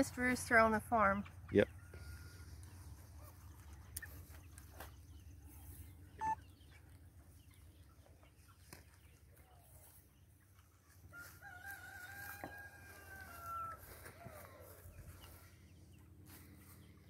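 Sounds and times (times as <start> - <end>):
rooster crowing: 1.9 - 2.6, 11.1 - 14.9.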